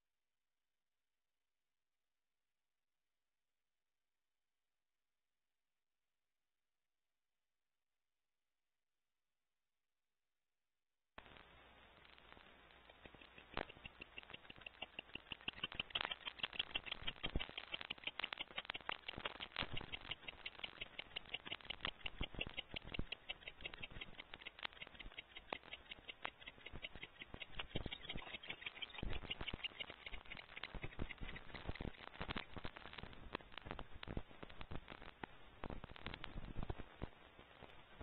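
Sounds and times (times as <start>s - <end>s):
rapid dry clicks and ticks: 11.2s - 38.0s.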